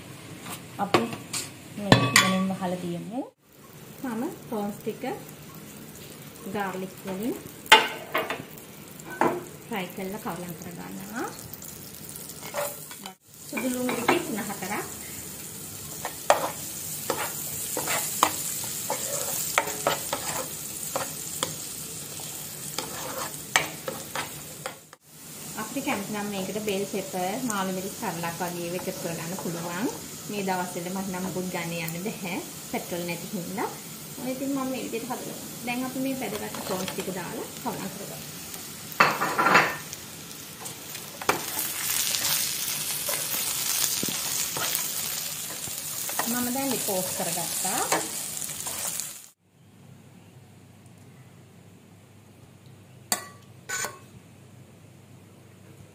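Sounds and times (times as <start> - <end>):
garlic sizzling in butter: 3.4 - 49.4
spatula scraping a pan: 12.4 - 13.7, 15.9 - 21.7, 22.6 - 25.0, 40.6 - 49.1, 53.7 - 54.0.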